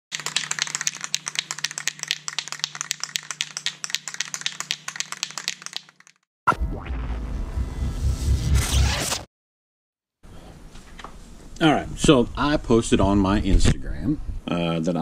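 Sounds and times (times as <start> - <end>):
rapid irregular clicking: 0.1 - 6.2
low hum: 6.5 - 9.1.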